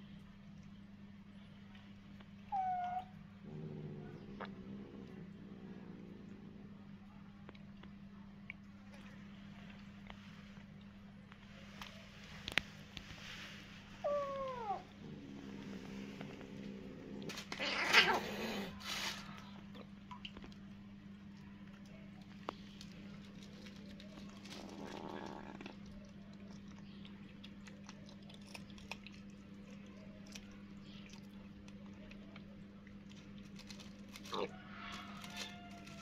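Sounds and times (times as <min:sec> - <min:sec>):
kitten crunching food: 0:01.7 - 0:36.0
kitten meowing: 0:02.5 - 0:03.1.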